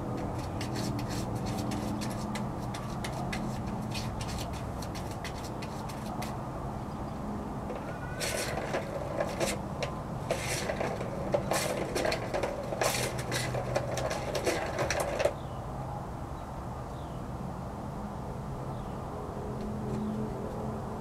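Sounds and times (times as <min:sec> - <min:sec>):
kitten scratching cardboard: 0:00.0 - 0:06.6, 0:07.7 - 0:15.4.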